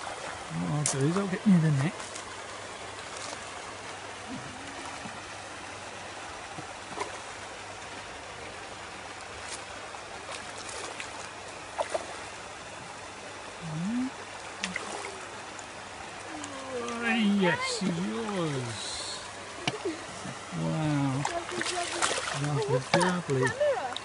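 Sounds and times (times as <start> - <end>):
water hiss: 13.4 - 22.9
fish splashing at surface: 21.2 - 23.4.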